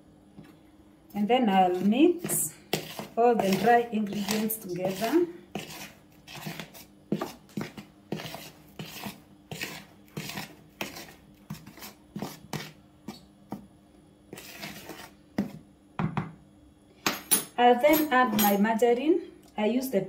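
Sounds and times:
spoon scraping plastic bowl: 1.5s - 13.2s, 14.3s - 15.6s.

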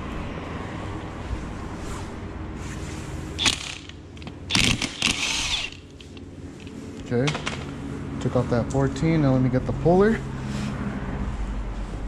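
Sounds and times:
impact wrench hammering: 3.4s - 5.9s
tool handling: 3.4s - 7.7s.

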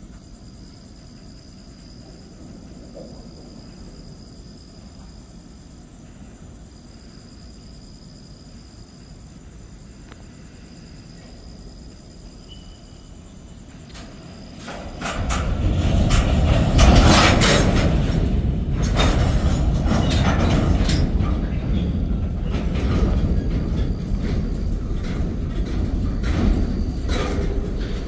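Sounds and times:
train wheels rumbling on rail: 0.0s - 28.0s
wheels and couplers clanking: 13.8s - 28.0s.

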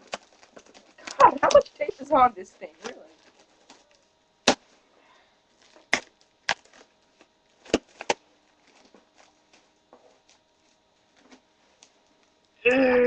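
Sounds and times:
faint clicks and rustles: 0.0s - 4.4s.

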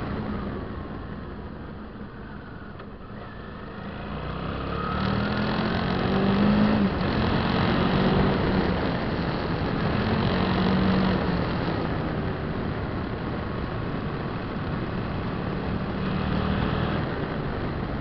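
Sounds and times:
motorcycle engine accelerating: 2.2s - 18.0s.

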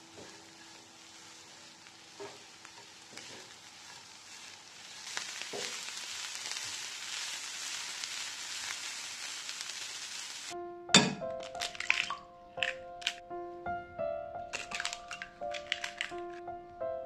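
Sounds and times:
vegetables sizzling in oil: 0.0s - 10.6s, 14.5s - 16.4s.

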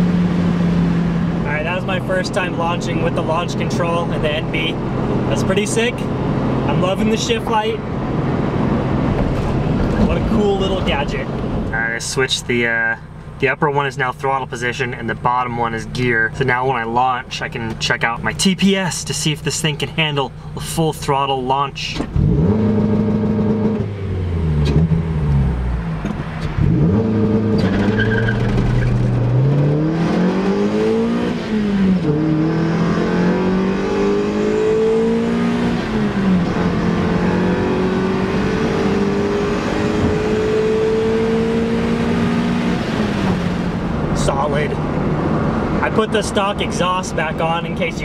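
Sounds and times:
car engine revving at full throttle: 0.0s - 11.8s, 22.0s - 48.0s.

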